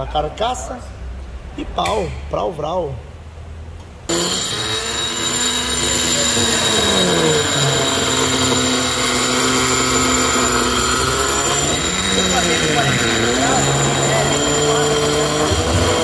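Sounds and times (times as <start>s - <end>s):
die grinder whining on metal: 4.1s - 16.0s.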